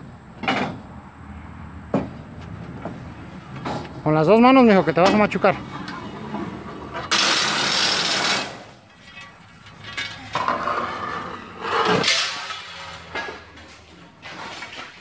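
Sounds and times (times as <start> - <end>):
metal pole scraping on ground: 5.0 - 15.0.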